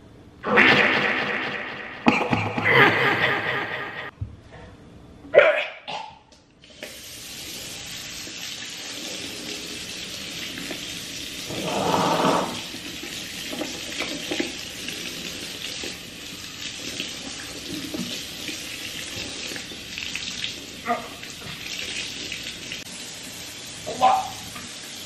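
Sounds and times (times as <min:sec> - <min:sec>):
tap water running: 0:06.6 - 0:25.0.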